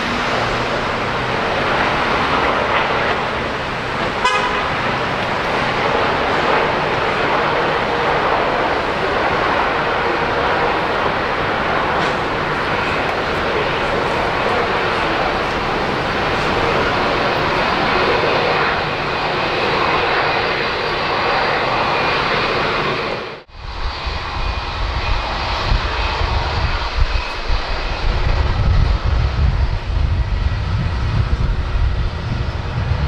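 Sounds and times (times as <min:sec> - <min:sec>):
jet engines rushing: 0:00.0 - 0:33.0
low rumble: 0:23.5 - 0:33.0.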